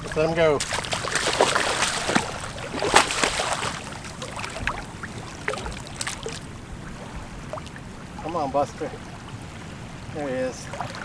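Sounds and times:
rubber boots wading: 0.0s - 7.8s.

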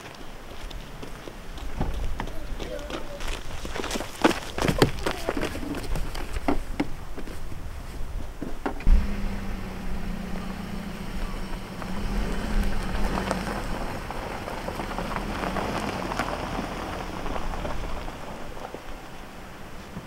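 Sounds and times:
tyres crunching on gravel: 0.0s - 20.0s
low engine hum: 8.0s - 20.0s.

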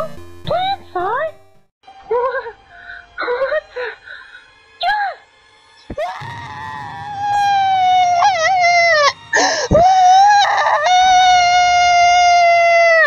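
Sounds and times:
high-pitched cartoon voice screaming: 5.9s - 9.1s.

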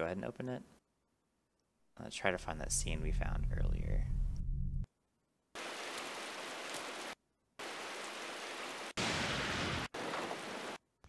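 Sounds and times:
rain hissing: 5.6s - 10.8s.

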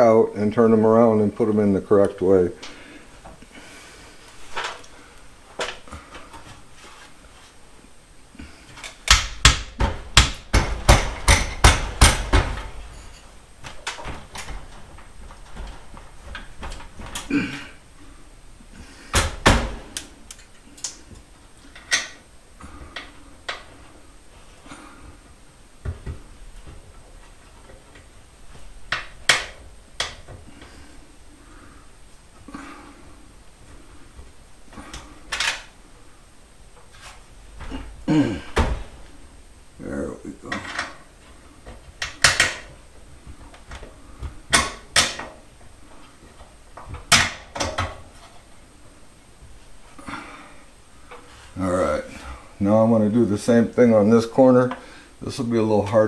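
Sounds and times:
sharp knocks on ladder hardware: 9.1s - 12.7s.

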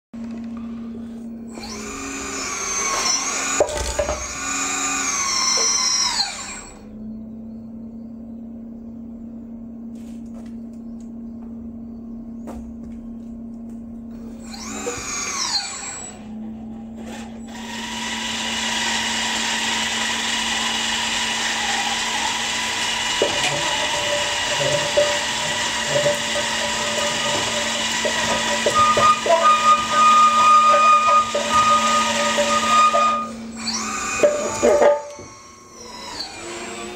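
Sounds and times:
motor whine: 0.2s - 36.9s
loud steady whine: 22.1s - 36.1s.

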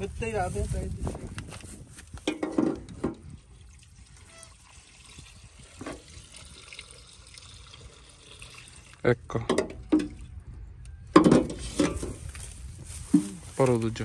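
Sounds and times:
faint trickle of liquid: 3.2s - 9.2s.

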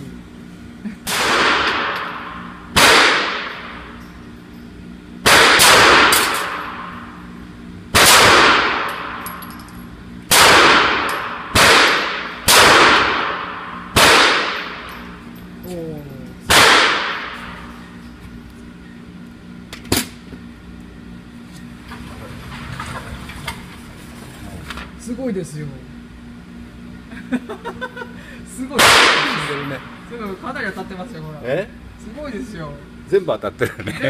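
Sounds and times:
pistol shots echoing indoors: 1.1s - 3.8s, 5.2s - 7.0s, 7.9s - 9.2s, 10.3s - 14.9s, 16.5s - 17.5s, 28.8s - 29.7s.

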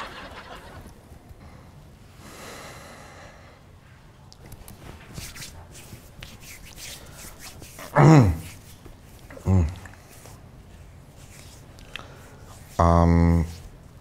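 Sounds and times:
breathy exhale: 1.4s - 3.7s.

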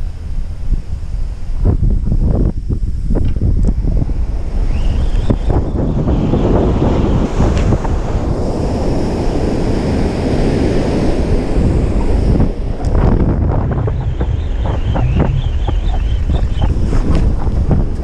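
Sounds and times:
wind buffeting microphone: 0.0s - 18.0s
surf crashing on beach: 3.8s - 18.0s.

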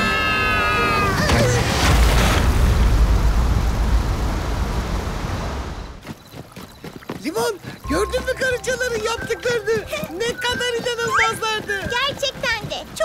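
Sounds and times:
rushing noise with deep rumble: 1.4s - 6.0s
musical chord with falling glide: 7.9s - 11.2s.

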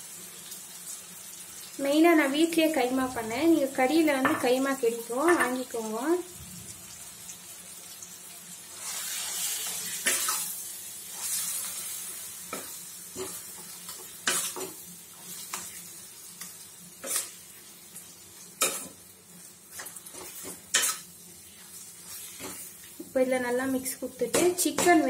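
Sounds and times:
meat sizzling in a pan: 0.0s - 25.0s
metal spatula scraping a pan: 8.7s - 15.8s, 17.0s - 17.4s, 18.6s - 19.0s, 19.7s - 22.9s.

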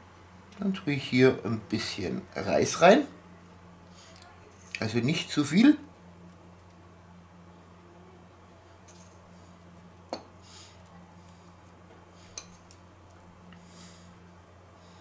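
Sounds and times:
steady low hum: 0.0s - 15.0s
soft sprinkling rustles: 8.6s - 14.1s.

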